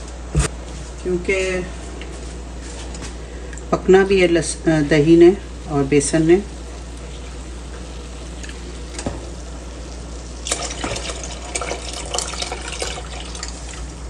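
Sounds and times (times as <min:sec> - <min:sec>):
steady low hum: 0:00.0 - 0:14.0
batter splashing and gurgling: 0:06.5 - 0:14.0.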